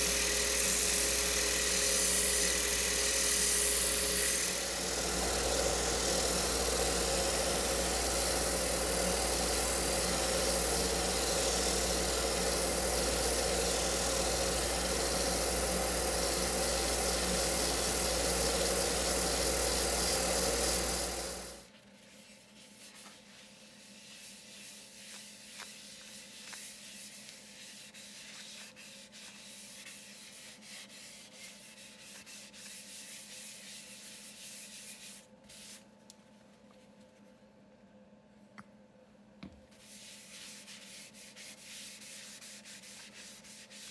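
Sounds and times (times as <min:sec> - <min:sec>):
power sander whirring: 0:00.0 - 0:21.6
paper towel rubbing: 0:21.8 - 0:35.9, 0:39.7 - 0:43.9.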